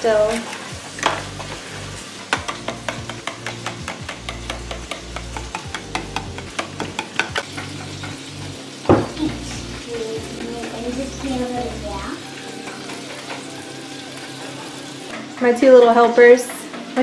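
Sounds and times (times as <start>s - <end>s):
utensil clicking against bowl: 2.3s - 8.2s
knock on bowl: 8.9s - 9.2s.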